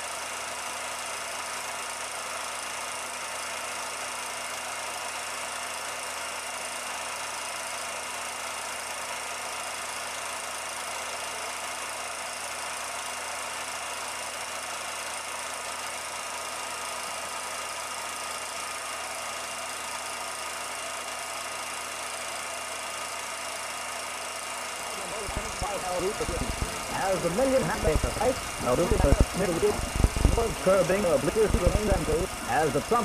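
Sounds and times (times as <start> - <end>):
steady film soundtrack hiss: 24.8 - 33.0
faint steady tones: 24.9 - 33.0.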